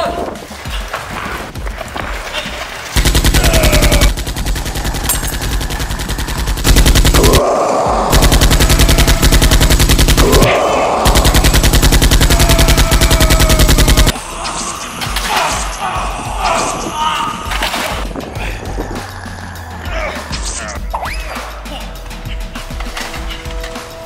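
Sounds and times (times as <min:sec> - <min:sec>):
machine-gun bursts: 0:03.0 - 0:07.4, 0:08.1 - 0:14.2.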